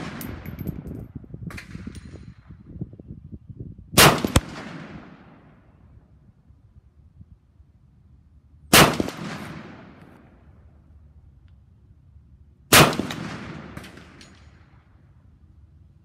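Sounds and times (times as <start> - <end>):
rifle shots echoing: 0.0 - 0.4, 4.0 - 5.5, 8.7 - 10.2, 12.7 - 14.6.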